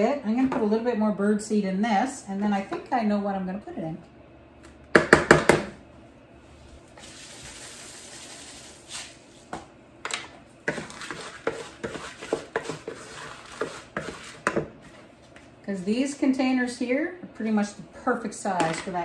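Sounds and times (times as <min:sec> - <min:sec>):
spatula scraping mixing bowl: 0:10.6 - 0:16.0.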